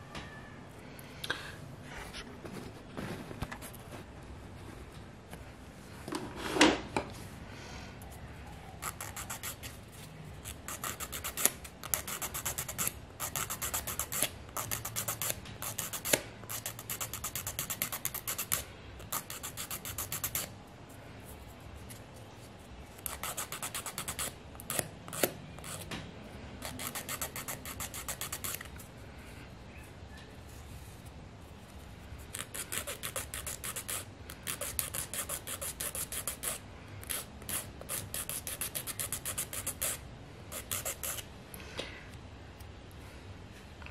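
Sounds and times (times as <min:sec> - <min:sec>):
nail file rasping: 0:08.8 - 0:09.8, 0:10.4 - 0:20.5, 0:22.9 - 0:25.9, 0:26.6 - 0:28.7, 0:32.3 - 0:41.3.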